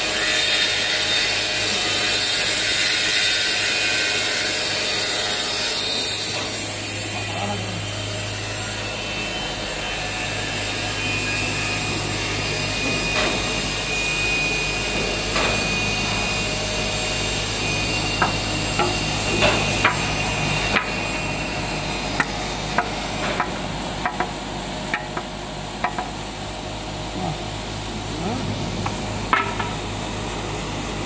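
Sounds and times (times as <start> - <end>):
sharp knocks and clicks: 22.2 - 24.3, 24.9 - 26.1.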